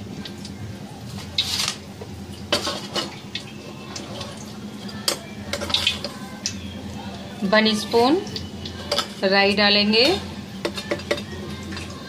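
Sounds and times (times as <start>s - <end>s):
metal utensil clinking on pan: 8.8s - 9.2s.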